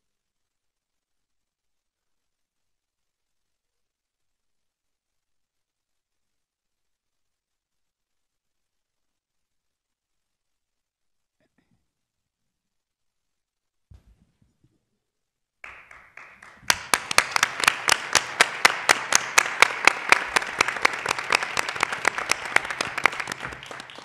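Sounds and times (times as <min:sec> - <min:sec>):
close sharp claps: 0:15.6 - 0:24.0
group applause: 0:15.6 - 0:24.0.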